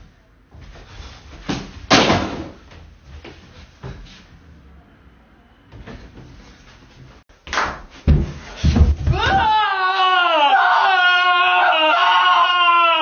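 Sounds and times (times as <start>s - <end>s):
knocks against wall and mirror: 7.7s - 9.4s.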